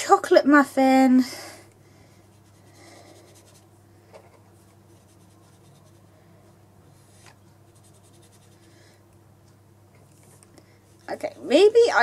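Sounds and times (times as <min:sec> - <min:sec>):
low steady hum: 0:00.0 - 0:12.0
soft scratchy brush strokes: 0:02.3 - 0:03.7, 0:04.6 - 0:06.3, 0:06.9 - 0:08.8.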